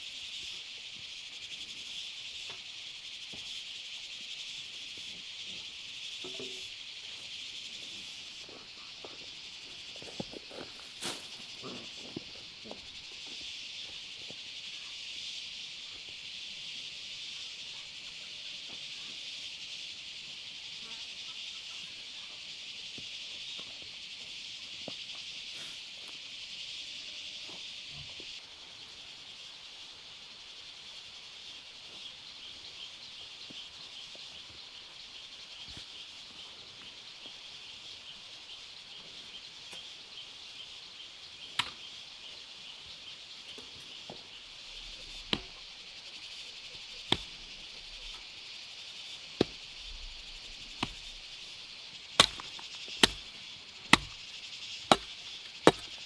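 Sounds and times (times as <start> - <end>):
insects chirring: 0.0 - 56.0
sharp chopping strikes: 52.2 - 53.2, 53.9 - 54.2, 54.9 - 55.1, 55.7 - 56.0.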